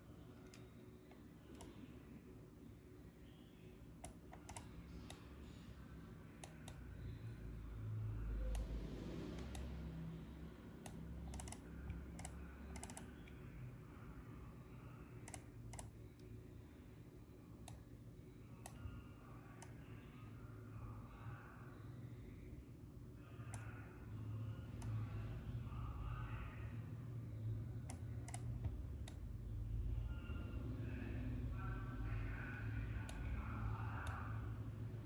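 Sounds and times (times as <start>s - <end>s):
computer keyboard clicks: 4.0s - 5.2s, 10.8s - 13.4s, 15.3s - 16.3s, 27.9s - 29.2s.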